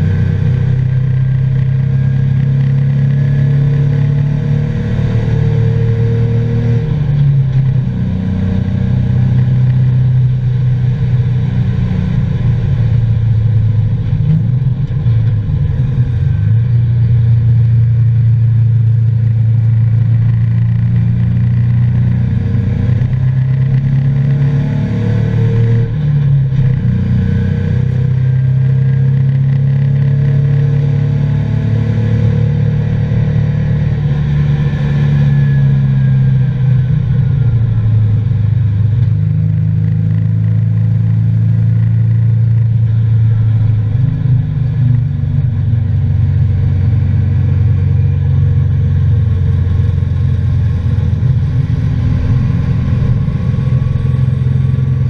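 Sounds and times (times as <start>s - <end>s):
car engine revving hard: 23.8s - 26.0s.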